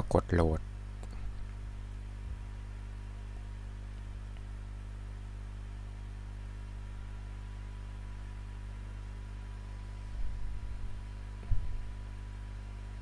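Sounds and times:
low electrical hum: 0.0 - 13.0
soft low thumps: 10.0 - 12.2.

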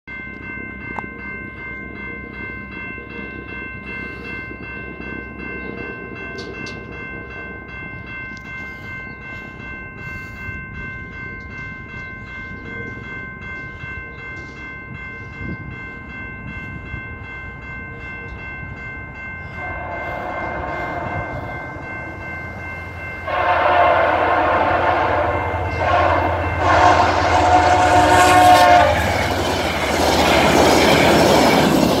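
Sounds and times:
railway crossing bell ringing: 0.1 - 32.0
train passing over crossing: 0.1 - 32.0
train horn blasts: 19.6 - 21.7, 23.2 - 29.4.

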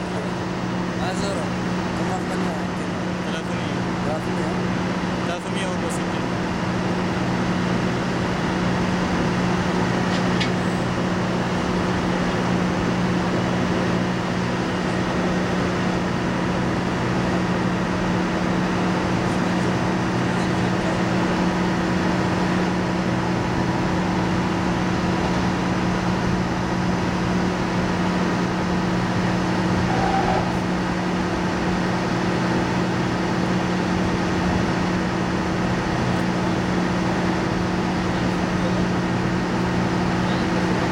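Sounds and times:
drilling rig machinery drone: 0.0 - 40.9.

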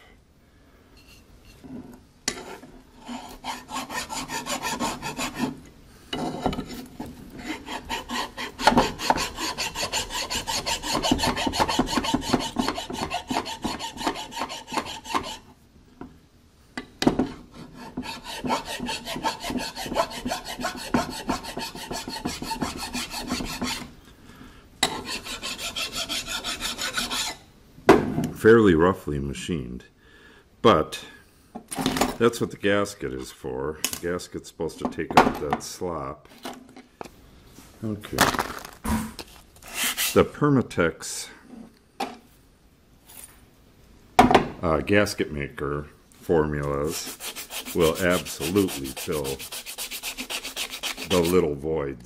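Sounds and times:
hand file rasping on metal: 2.3 - 5.6, 7.4 - 15.5, 17.6 - 23.9, 24.8 - 27.4, 46.8 - 51.5.

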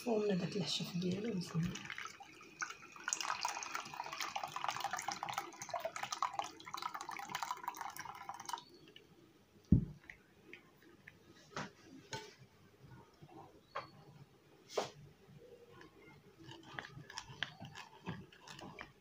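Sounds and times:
liquid pouring through strainer: 1.1 - 8.9.

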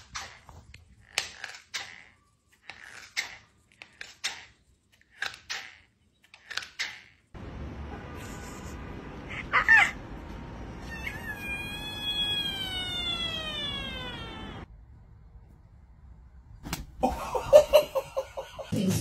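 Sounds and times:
cat meowing and yowling: 10.8 - 14.7.

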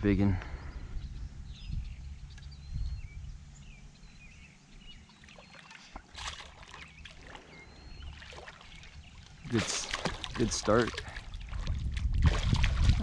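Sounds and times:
birds chirping: 0.0 - 11.6
water splashing and dripping: 5.2 - 13.0.

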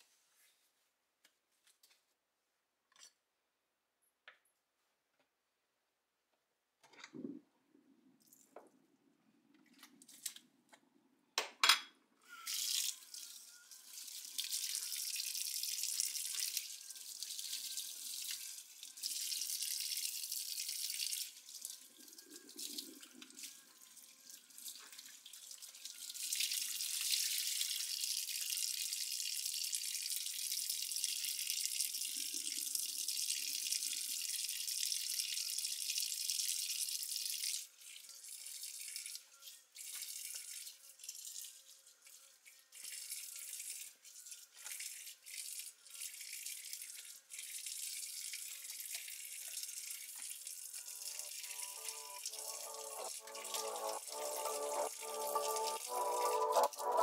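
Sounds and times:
faucet water running into sink: 12.3 - 57.0.

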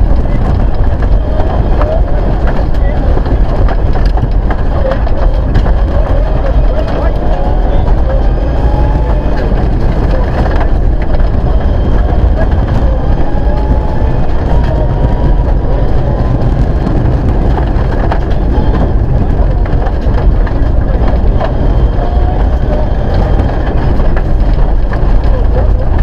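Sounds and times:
rally car engine under load: 0.0 - 26.0
tyres rushing on loose gravel: 0.0 - 26.0.

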